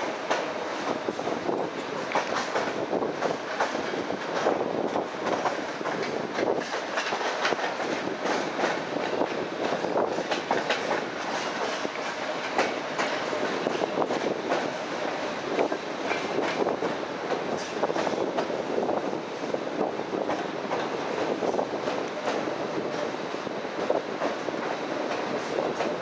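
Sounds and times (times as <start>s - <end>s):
wheels clacking over rail joints: 0.0s - 19.1s
train wheels rumbling on rail: 0.0s - 26.0s.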